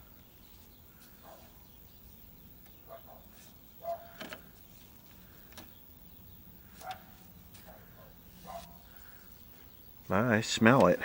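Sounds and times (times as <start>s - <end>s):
low background hiss: 0.0s - 11.0s
faint dog barks: 1.2s - 1.6s, 2.8s - 4.2s, 6.8s - 8.8s.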